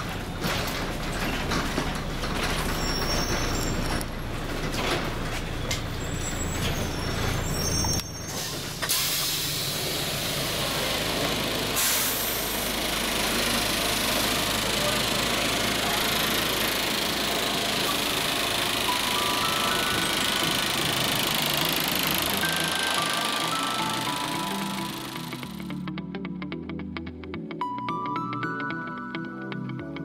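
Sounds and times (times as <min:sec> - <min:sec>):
rattles inside bus cabin: 0:00.0 - 0:24.0
bus engine running: 0:00.0 - 0:25.8
compressed air hiss: 0:11.8 - 0:12.6.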